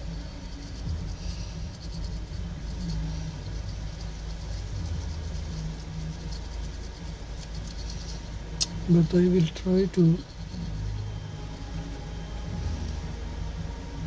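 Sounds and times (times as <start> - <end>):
toothbrush scratching circuit board: 0.0 - 13.4
steady low rumble: 0.0 - 14.0.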